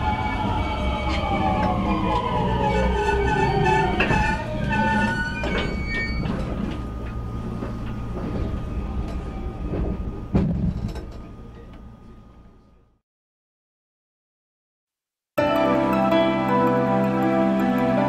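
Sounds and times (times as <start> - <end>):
electric train inverter tones: 0.0 - 12.7
train low hum: 0.0 - 13.0.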